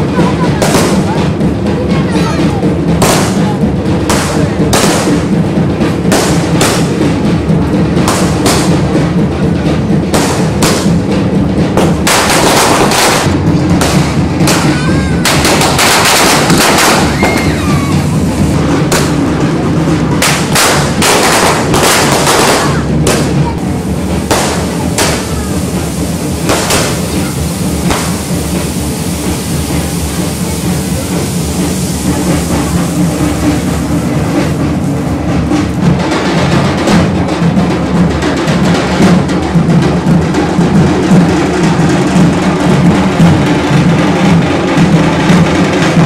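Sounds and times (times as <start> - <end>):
background music: 0.0 - 46.0
fireworks bangs and crackles: 0.0 - 46.0
firework whistles: 11.8 - 19.2, 20.2 - 34.6.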